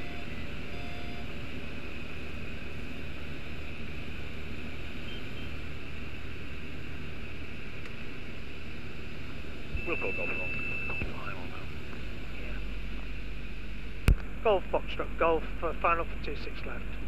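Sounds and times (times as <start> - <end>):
aircraft engine and propeller droning: 0.0 - 17.0.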